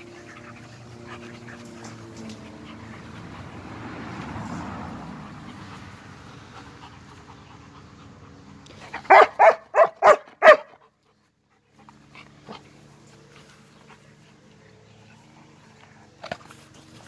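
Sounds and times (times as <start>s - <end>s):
dog barking: 8.9s - 10.8s.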